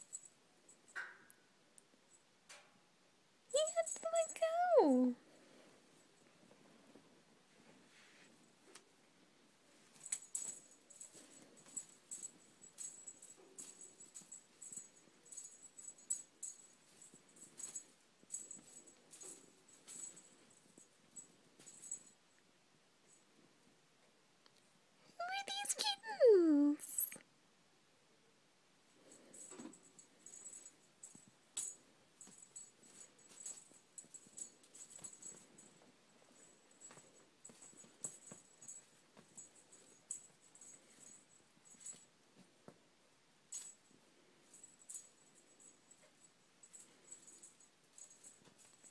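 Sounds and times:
small bell jingling: 0.0s - 1.0s, 3.5s - 7.0s, 9.7s - 22.4s, 25.3s - 27.2s, 29.0s - 42.8s, 43.4s - 48.9s.

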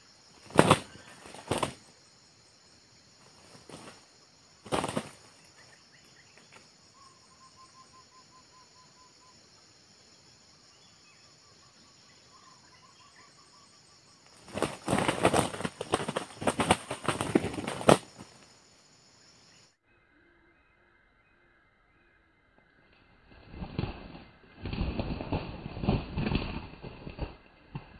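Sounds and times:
wing-flapping and scuffling: 0.3s - 1.9s, 3.2s - 5.5s, 14.3s - 18.5s, 23.2s - 27.9s.

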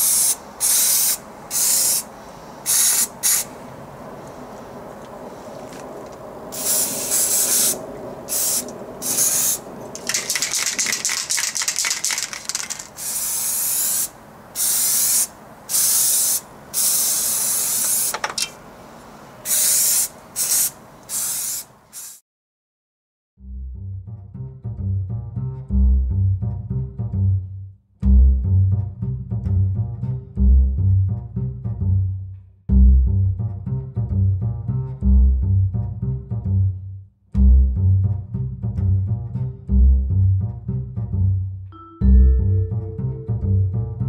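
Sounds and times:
aerosol can spraying: 0.0s - 2.0s, 2.7s - 3.5s, 6.6s - 18.3s, 19.5s - 22.2s.

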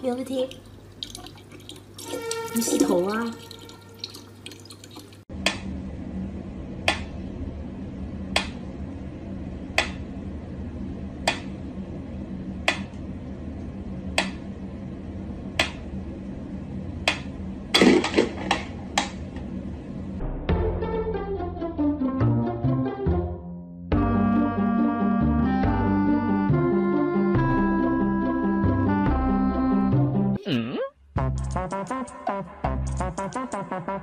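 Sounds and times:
low hum: 5.3s - 21.7s.

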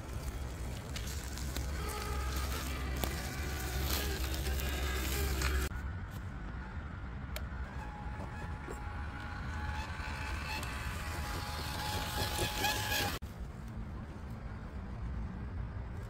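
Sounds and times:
electric motor and gears whining: 0.0s - 5.9s, 6.5s - 13.2s
dull quiet running sound: 0.0s - 16.0s.

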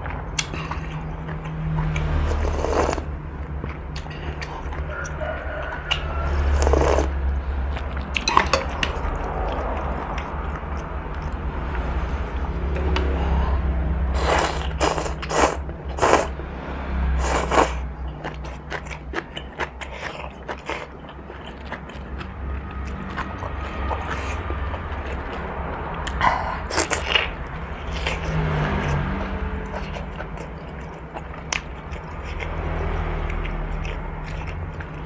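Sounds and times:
noodles slurped: 2.3s - 3.0s, 6.6s - 7.2s, 14.2s - 16.4s, 17.2s - 17.8s.

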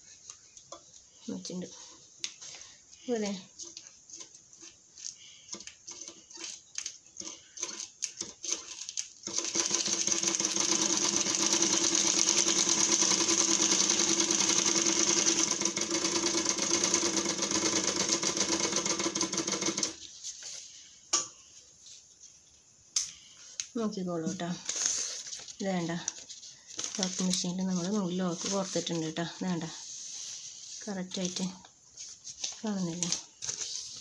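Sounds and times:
overlock machine stitching: 9.3s - 20.0s.

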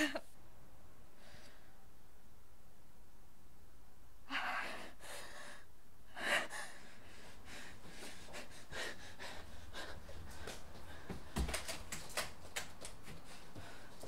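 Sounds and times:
woman breathing quickly: 4.3s - 11.4s, 13.1s - 14.0s.

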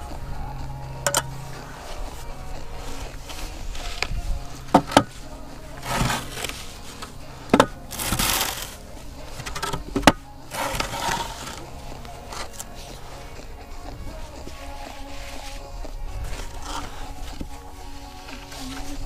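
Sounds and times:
board scraping across damp sand: 5.2s - 7.0s, 7.9s - 8.9s, 10.5s - 11.7s.

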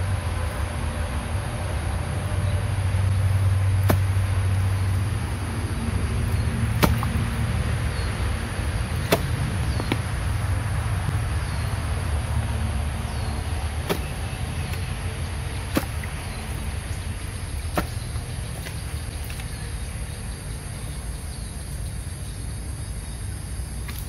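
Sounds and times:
steady low rumble: 0.0s - 23.8s
hoe chopping into mud: 3.8s - 4.2s, 6.3s - 7.3s, 9.0s - 10.1s, 13.8s - 14.8s, 15.6s - 16.2s, 17.6s - 19.4s.

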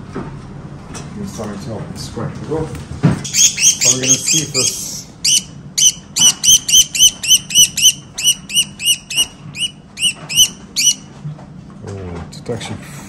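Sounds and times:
budgerigar squawking: 3.3s - 11.1s.

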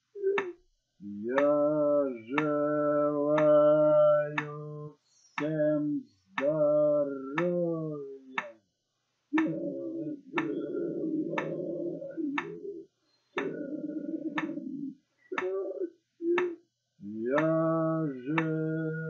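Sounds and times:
sharp ticks: 1.3s - 1.7s, 2.3s - 3.7s, 4.3s - 4.7s, 9.4s - 9.6s, 10.3s - 10.7s, 11.3s - 11.6s, 12.4s - 12.6s, 13.4s - 13.6s, 14.3s - 14.6s, 15.3s - 15.7s, 17.4s - 18.8s.

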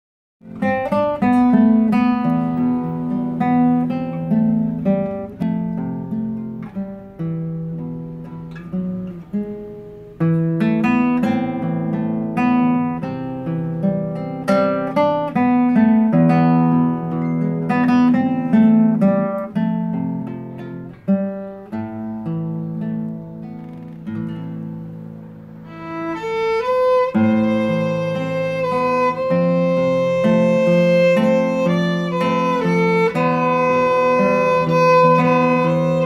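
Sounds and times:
plucked guitar: 0.4s - 36.0s
bowed violin melody: 25.6s - 36.0s.

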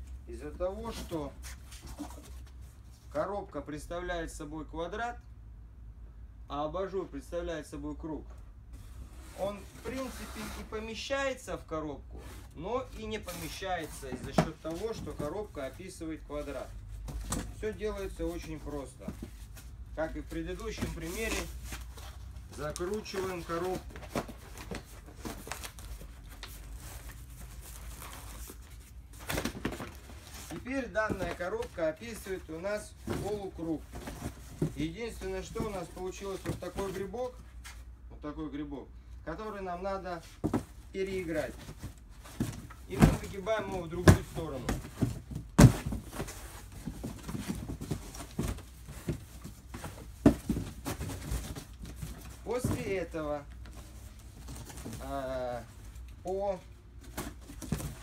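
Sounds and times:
cardboard crackling and rustling: 9.1s - 11.0s, 12.2s - 37.8s, 40.2s - 58.0s
cardboard box knocks and scuffs: 29.2s - 32.2s, 40.3s - 55.1s, 57.0s - 58.0s.

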